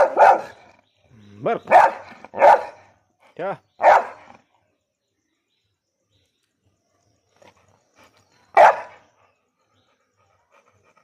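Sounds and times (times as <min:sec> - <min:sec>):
dog barking: 0:00.0 - 0:00.6, 0:01.7 - 0:02.8, 0:03.8 - 0:04.3, 0:08.6 - 0:09.0.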